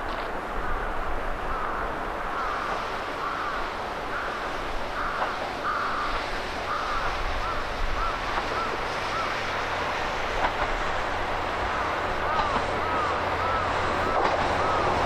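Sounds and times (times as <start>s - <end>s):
outdoor background noise: 0.0s - 15.0s
bird calling: 1.6s - 9.5s, 12.2s - 15.0s.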